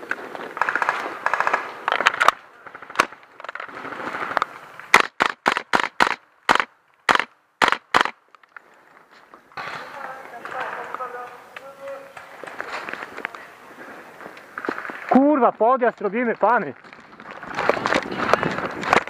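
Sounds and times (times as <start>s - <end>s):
airsoft rifle shots: 4.9s - 8.2s.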